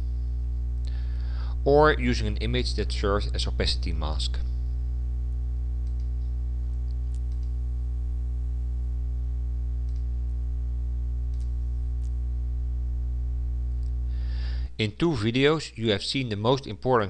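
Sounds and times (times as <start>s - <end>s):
electrical mains hum: 0.0s - 17.0s
faint computer mouse clicks: 5.8s - 6.3s, 7.1s - 7.6s, 11.3s - 12.2s.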